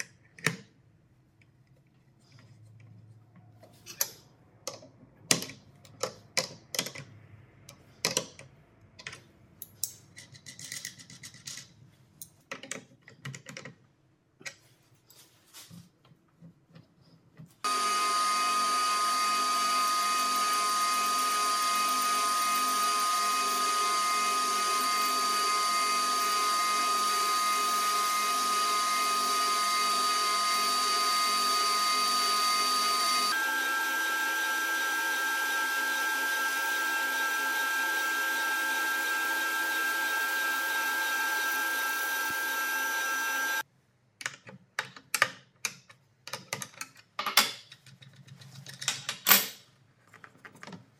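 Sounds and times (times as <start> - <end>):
table saw shaving wood: 17.6 - 43.6.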